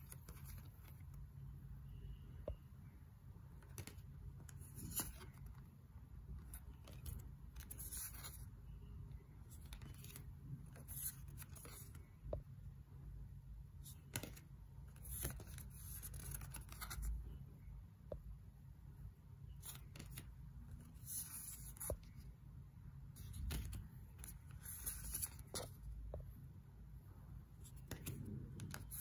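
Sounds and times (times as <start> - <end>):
faint low hum: 0.0 - 29.0
cards sliding and tapping: 3.6 - 5.6, 13.8 - 17.0, 19.6 - 22.2, 23.2 - 25.9, 27.6 - 29.0.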